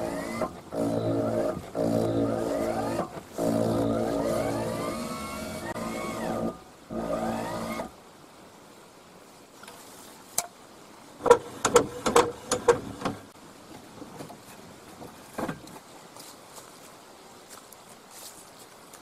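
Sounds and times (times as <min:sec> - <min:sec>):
electric motor whining: 0:00.0 - 0:08.0
sharp clicks and knocks: 0:11.2 - 0:13.3, 0:14.0 - 0:15.8.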